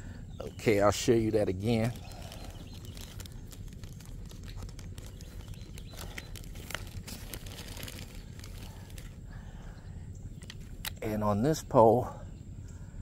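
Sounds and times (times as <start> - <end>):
steady low rumble: 0.0 - 13.0
crackles and clicks: 1.6 - 9.2
scratchy handling noise: 1.6 - 9.2.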